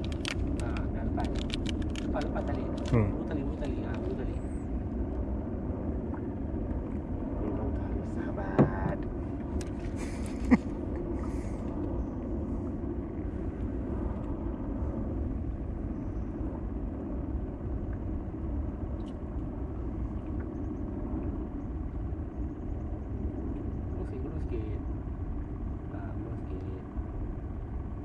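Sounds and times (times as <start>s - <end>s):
low rumble on water: 0.0s - 28.0s.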